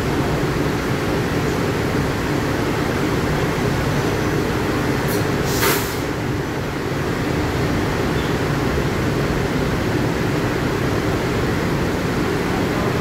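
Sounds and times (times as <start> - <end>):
electric train rumbling and humming: 0.0 - 13.0
sharp hiss of air: 5.1 - 6.2.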